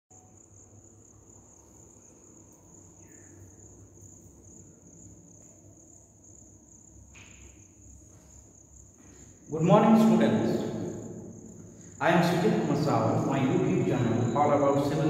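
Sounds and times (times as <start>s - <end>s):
high-pitched insect drone: 0.2s - 15.0s.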